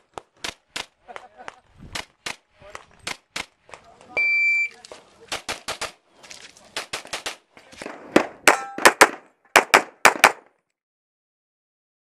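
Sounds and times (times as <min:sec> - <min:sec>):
rapid pistol fire: 0:05.3 - 0:06.0, 0:06.8 - 0:07.4, 0:08.8 - 0:10.4.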